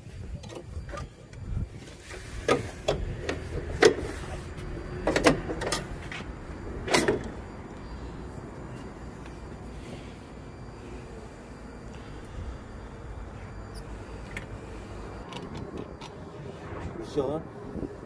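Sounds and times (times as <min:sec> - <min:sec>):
tractor hood clanking open: 0:05.0 - 0:05.9, 0:06.8 - 0:07.4.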